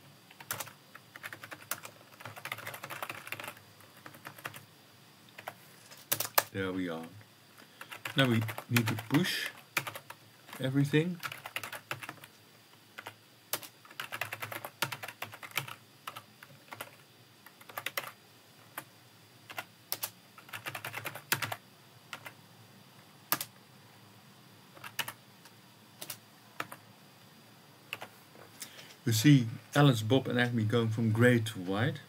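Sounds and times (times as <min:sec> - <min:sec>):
keyboard typing clicks: 0:05.3 - 0:06.5.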